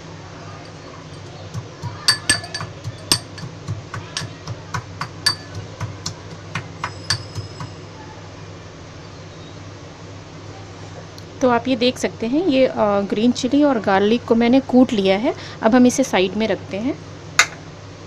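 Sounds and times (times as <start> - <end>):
metal pestle clinking in mortar: 0.7 - 7.8.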